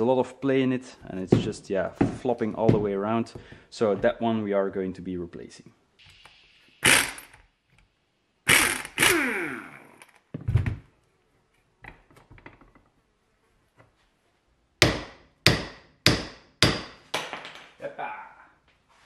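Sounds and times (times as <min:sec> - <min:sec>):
air impact wrench bursts: 0:06.0 - 0:07.5, 0:08.4 - 0:10.1.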